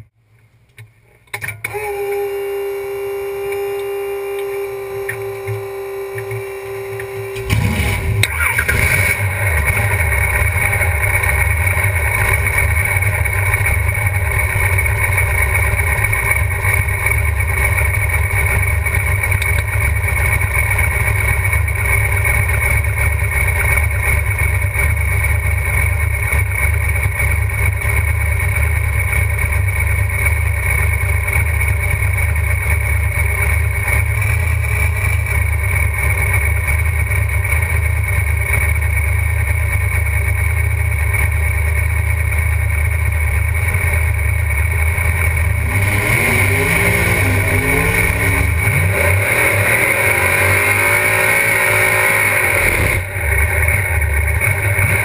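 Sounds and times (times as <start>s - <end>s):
car engine running: 0.0s - 55.0s
steady whine: 0.0s - 55.0s.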